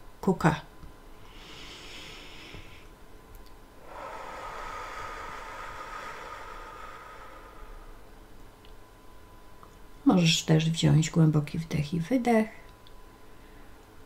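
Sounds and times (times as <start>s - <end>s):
woman breathing deeply: 1.2s - 3.0s, 3.8s - 8.5s.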